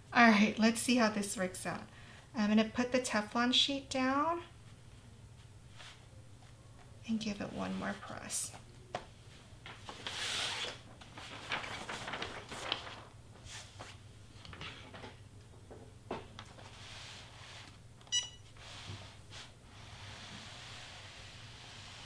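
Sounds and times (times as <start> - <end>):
sheet rustling: 9.3 - 15.2
short electronic beep: 18.1 - 18.4.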